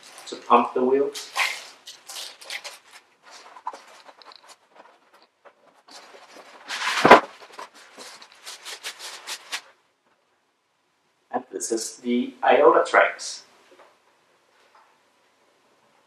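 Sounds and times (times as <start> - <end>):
plastic bag crinkling: 0.0 - 9.7
cardboard box rustling: 1.4 - 9.6
scrape ending in a thud: 6.6 - 8.2.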